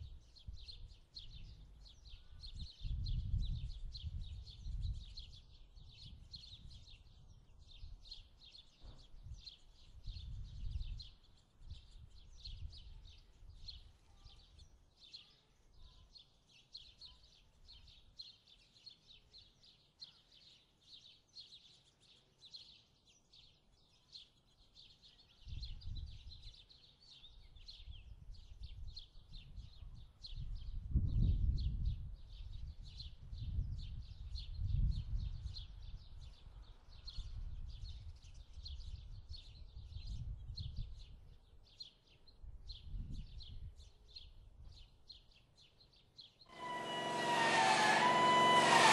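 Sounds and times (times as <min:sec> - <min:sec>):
low rumbles: 0:46.5 - 0:48.9.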